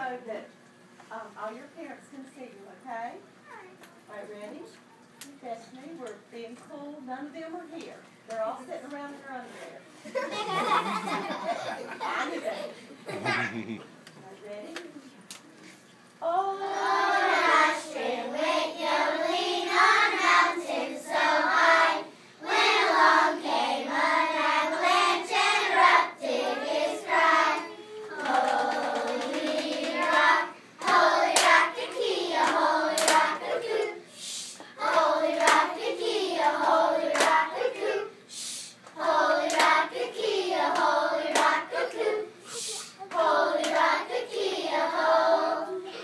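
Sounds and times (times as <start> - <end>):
children singing: 24.1 - 30.4
hand claps: 28.1 - 33.3, 34.9 - 35.7, 38.8 - 39.8, 40.8 - 41.6.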